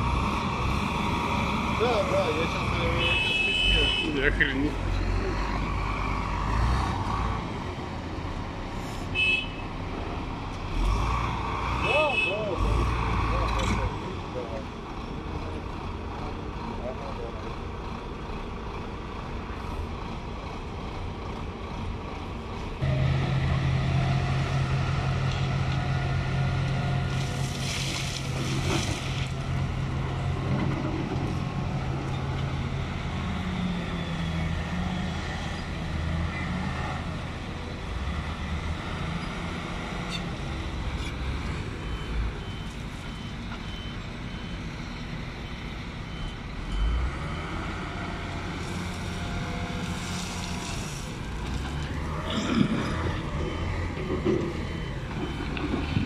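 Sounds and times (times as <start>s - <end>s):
heavy diesel engines running: 0.0s - 9.1s, 9.8s - 56.0s.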